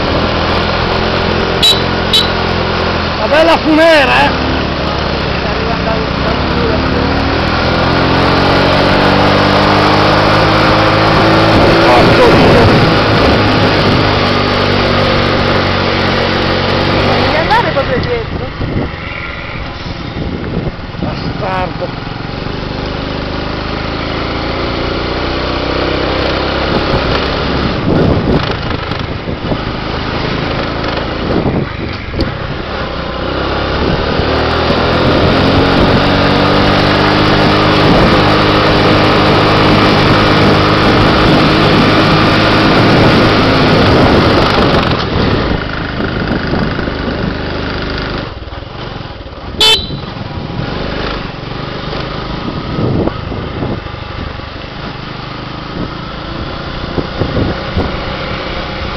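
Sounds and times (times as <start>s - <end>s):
short horn beep: 1.6s - 2.4s, 49.6s - 50.2s
small motorbike engine: 21.3s - 58.9s.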